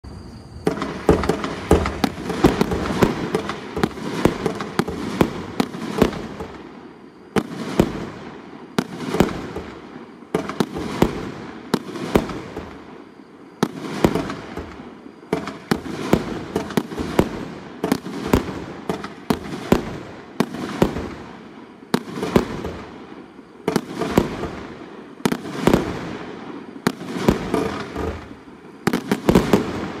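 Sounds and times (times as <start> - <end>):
fireworks banging: 0.5 - 8.2, 13.6 - 22.9, 23.6 - 30.0.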